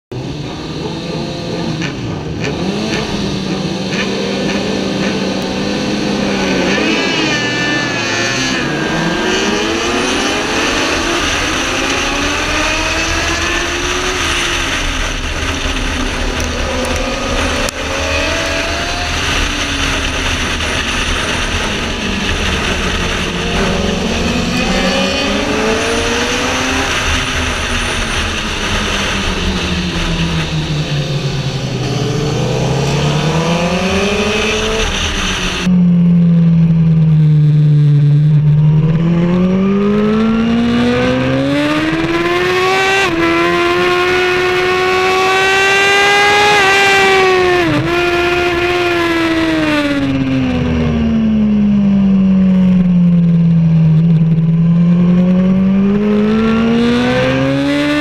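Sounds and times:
motorcycle engine revving high: 0:00.1 - 0:58.0.

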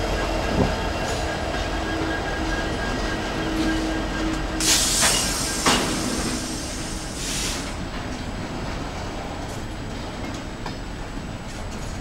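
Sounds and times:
steel train wheels rumbling on rails: 0:00.0 - 0:12.0
brief hissing bursts: 0:04.6 - 0:07.8.

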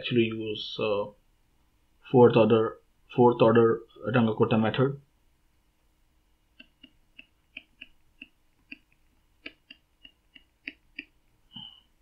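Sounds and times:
stylus ticking on a screen: 0:06.6 - 0:11.2.

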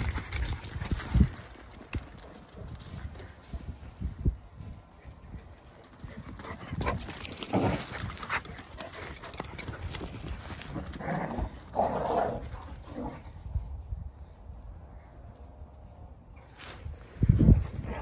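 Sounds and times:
dog paws clattering on paving: 0:00.0 - 0:03.4, 0:05.0 - 0:13.2.

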